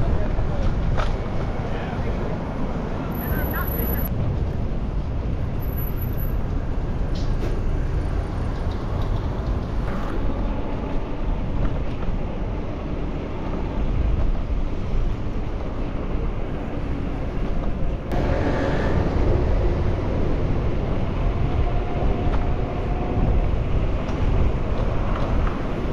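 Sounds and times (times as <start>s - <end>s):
road traffic rumble: 0.0s - 25.9s
wind on microphone: 8.0s - 25.9s.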